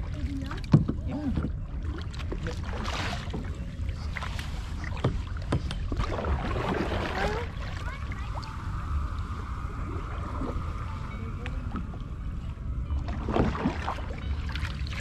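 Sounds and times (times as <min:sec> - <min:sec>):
paddle strokes in water: 0:00.0 - 0:08.5, 0:13.0 - 0:15.0
steady low rumble: 0:00.0 - 0:15.0.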